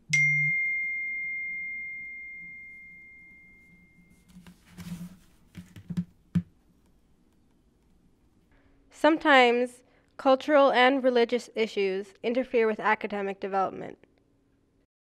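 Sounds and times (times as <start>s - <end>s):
smartphone notification chime: 0.1s - 4.2s.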